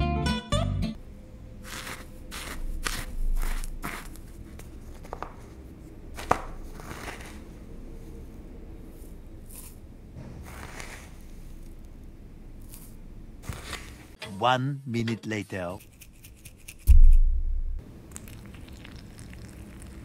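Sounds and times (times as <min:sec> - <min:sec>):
spoon scraping dry leaves: 0:01.6 - 0:05.0, 0:06.2 - 0:07.5, 0:08.9 - 0:09.8, 0:10.5 - 0:11.8, 0:12.6 - 0:14.1.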